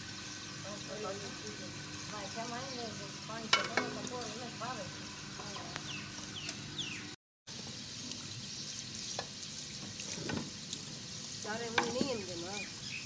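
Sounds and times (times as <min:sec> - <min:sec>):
water sloshing and splashing: 0:09.0 - 0:12.4.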